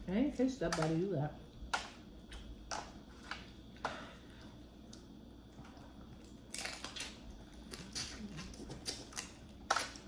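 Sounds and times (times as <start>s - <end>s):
crawfish shells cracking: 6.2s - 10.0s.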